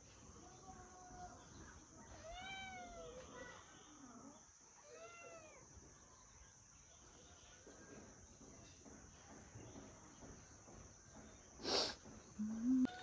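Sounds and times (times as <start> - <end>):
faint animal cries: 2.1 - 3.6, 4.8 - 5.8, 12.6 - 13.0.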